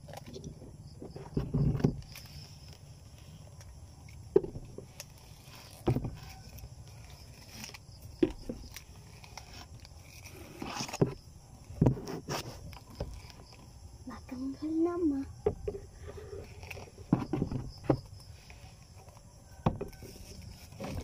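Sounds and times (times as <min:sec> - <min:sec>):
plastic bottle knocks and rustles: 0:01.0 - 0:02.1, 0:04.3 - 0:04.9, 0:05.8 - 0:06.3, 0:11.8 - 0:12.4, 0:17.0 - 0:18.1, 0:19.6 - 0:20.0.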